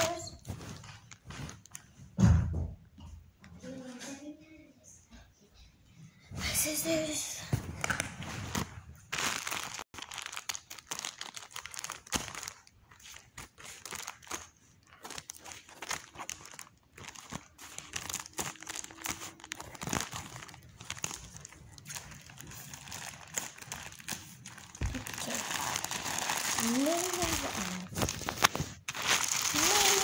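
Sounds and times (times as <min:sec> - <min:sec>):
plastic packets crinkling: 0:07.8 - 0:30.0.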